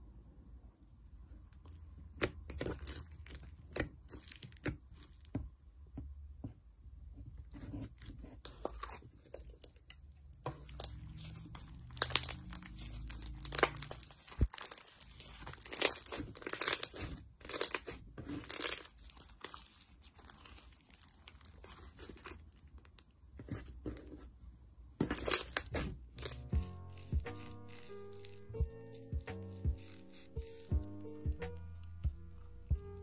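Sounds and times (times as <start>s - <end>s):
slime crackling and tearing: 2.1s - 5.2s, 8.7s - 23.0s, 25.1s - 33.0s.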